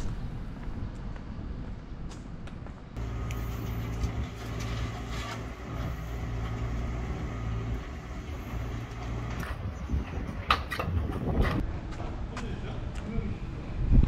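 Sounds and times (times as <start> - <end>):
motor humming: 3.0 - 11.5.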